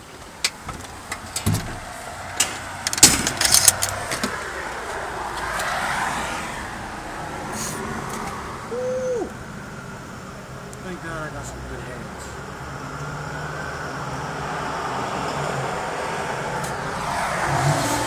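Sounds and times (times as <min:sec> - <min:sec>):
sharp clicks and knocks: 0:00.2 - 0:04.4
car passing: 0:00.7 - 0:18.0.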